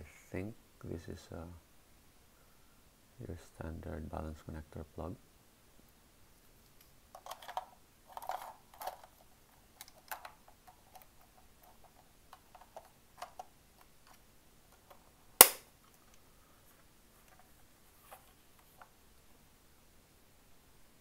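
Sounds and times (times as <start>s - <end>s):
small plastic clicks and rattles: 6.7s - 15.1s
sharp connector click: 15.4s - 15.6s.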